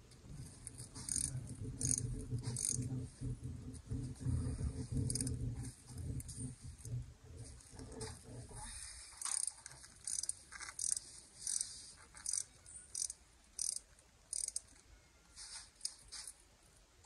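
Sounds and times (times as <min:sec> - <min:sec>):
ratchet wrench clicking: 0:00.7 - 0:02.8, 0:05.1 - 0:05.3, 0:09.2 - 0:14.8.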